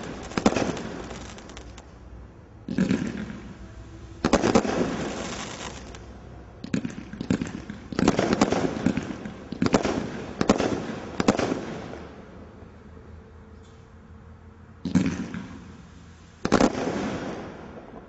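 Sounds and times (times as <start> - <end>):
firework crackling: 0.0 - 12.4, 14.8 - 18.0
roman candle shots: 0.0 - 12.6.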